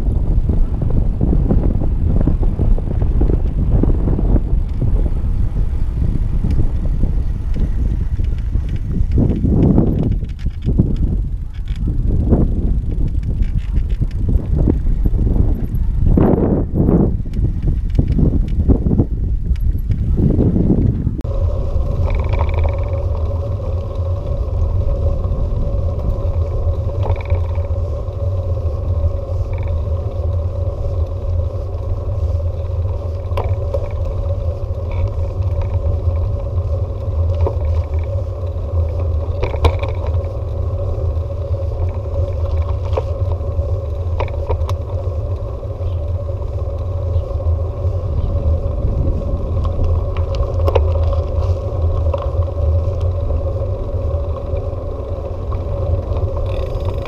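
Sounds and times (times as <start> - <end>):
bicycle clicks and rattles: 0.0 - 57.0
bicycle tyres rumbling on road: 0.0 - 57.0
steady hum: 20.1 - 57.0.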